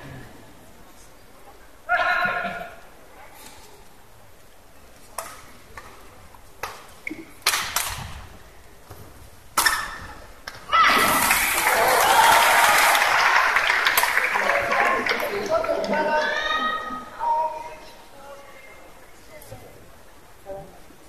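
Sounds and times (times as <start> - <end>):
crowd cheering and applause: 10.9 - 17.0.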